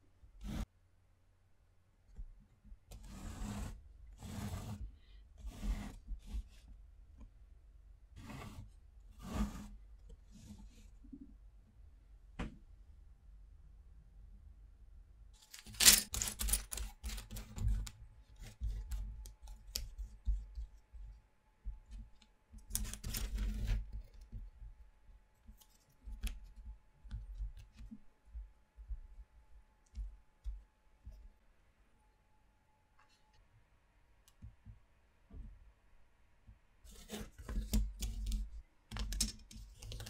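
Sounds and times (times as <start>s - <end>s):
wooden sticks clattering on table: 15.4s - 17.3s.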